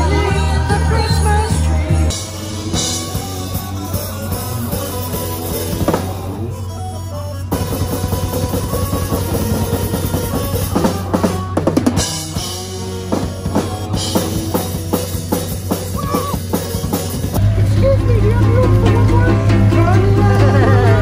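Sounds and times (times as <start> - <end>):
drum kit beat: 0.0 - 21.0
music with heavy bass: 0.0 - 21.0.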